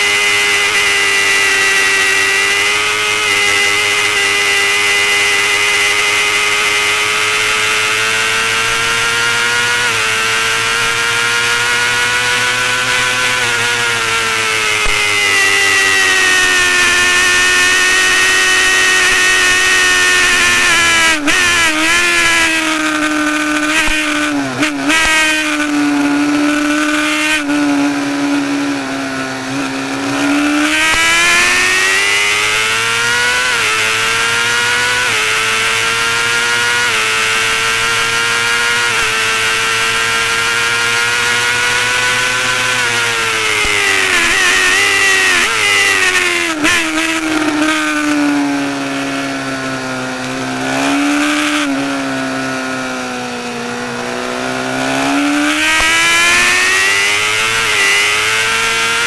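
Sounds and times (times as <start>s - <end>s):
motorcycle engine at high revs: 0.0s - 59.0s.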